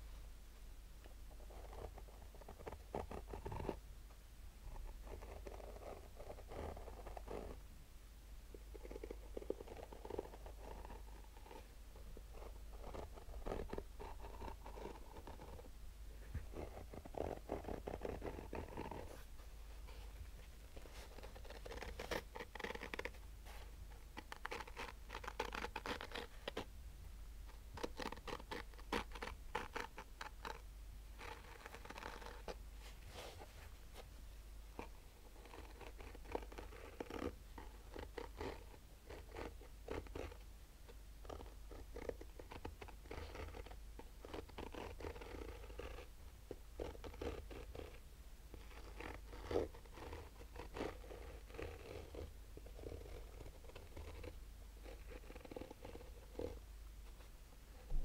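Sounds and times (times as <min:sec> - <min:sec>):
fingernails scratching fabric case: 0:08.8 - 0:11.7, 0:12.3 - 0:15.7, 0:16.4 - 0:19.2, 0:20.7 - 0:26.7, 0:27.7 - 0:30.6, 0:31.2 - 0:33.3, 0:34.7 - 0:40.4, 0:41.2 - 0:56.6.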